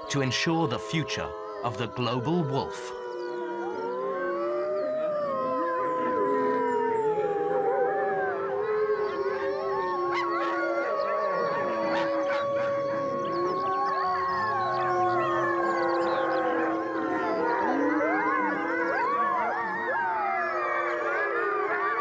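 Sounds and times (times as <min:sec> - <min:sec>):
wolves howling: 0:00.0 - 0:22.0.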